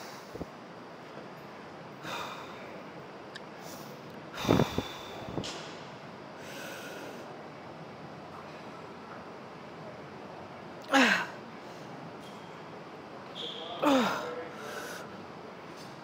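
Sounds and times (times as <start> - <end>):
person breathing forcefully: 4.4 - 5.4.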